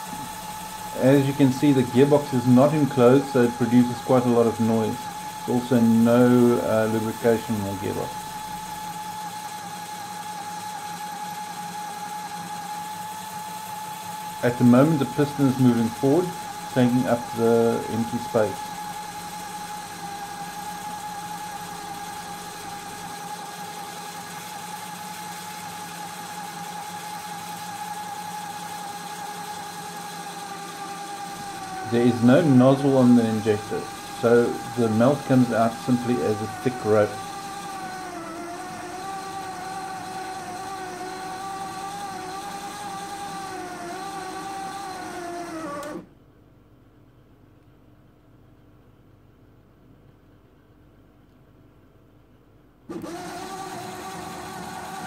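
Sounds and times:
gear motor whining: 0:00.0 - 0:46.1, 0:52.9 - 0:55.0.

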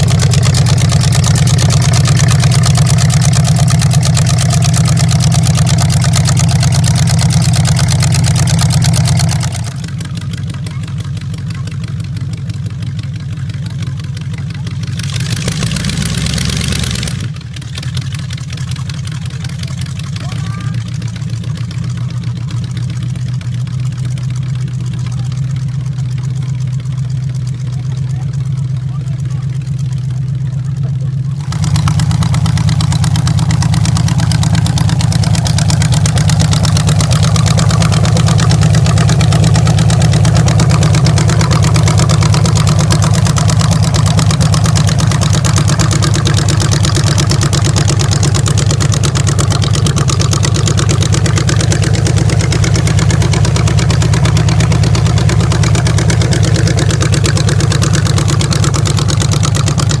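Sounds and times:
loud engine drone through open headers: 0:00.0 - 0:12.0, 0:13.8 - 0:17.6, 0:18.7 - 1:00.0.

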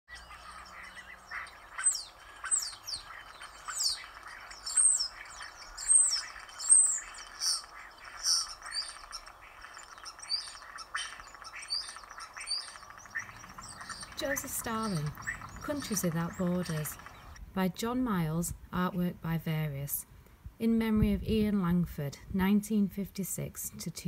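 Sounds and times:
starlings whistling: 0:00.1 - 0:17.4
faint steady hiss: 0:00.1 - 0:24.0.

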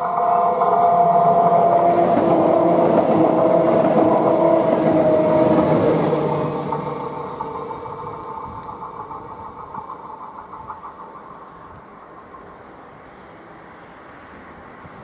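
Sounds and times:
train motor whine: 0:00.0 - 0:12.0
train wheels running over rails: 0:00.0 - 0:15.0.

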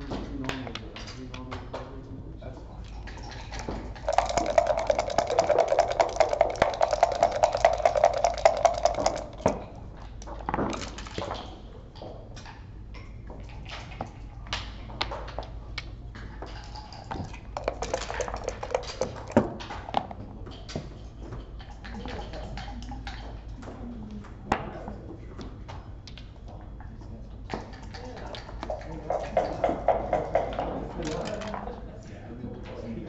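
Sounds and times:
dice rattling in a cup: 0:03.0 - 0:09.8, 0:16.5 - 0:20.2
dice clacking on a board: 0:03.4 - 0:09.7, 0:17.6 - 0:20.2.

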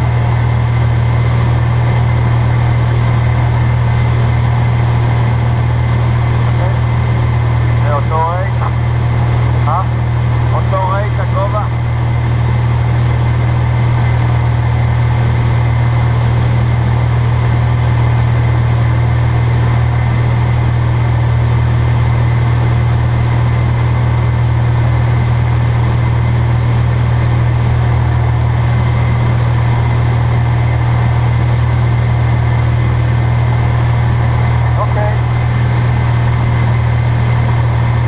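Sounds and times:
aircraft engine and propeller droning: 0:00.0 - 0:38.0
strong low hum: 0:00.0 - 0:38.0.

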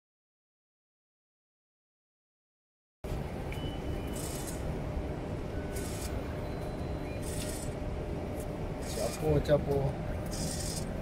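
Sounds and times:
steady background rumble: 0:03.1 - 0:11.0
vending machine hissing bursts: 0:10.3 - 0:10.9.

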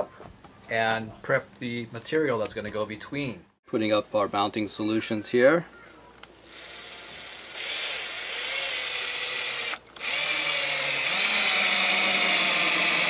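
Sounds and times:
drill driving screw into wood: 0:06.4 - 0:13.0.

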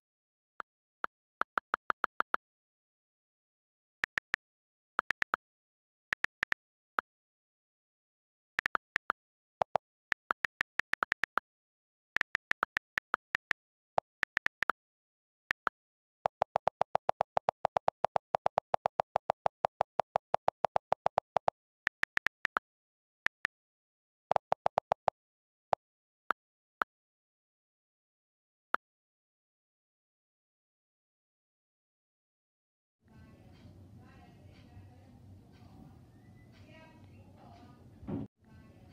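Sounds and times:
fast run of lower clicks: 0:12.2 - 0:14.8.

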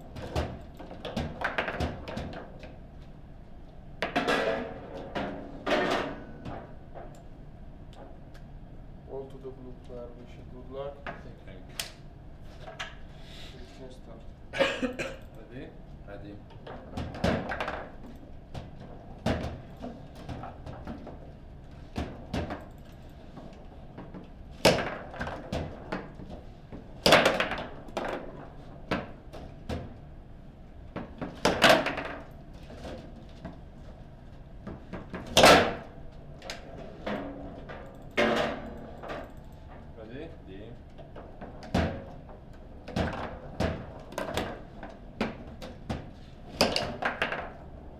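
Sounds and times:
foosball clacks and knocks: 0:00.1 - 0:02.8, 0:04.0 - 0:07.1, 0:16.5 - 0:22.6, 0:23.2 - 0:30.1, 0:30.9 - 0:33.6, 0:34.6 - 0:39.9, 0:40.8 - 0:47.9
loud sharp foosball shots: 0:24.6 - 0:26.2, 0:27.0 - 0:30.0, 0:31.1 - 0:32.3, 0:34.8 - 0:36.0, 0:38.2 - 0:39.2, 0:42.9 - 0:47.6.

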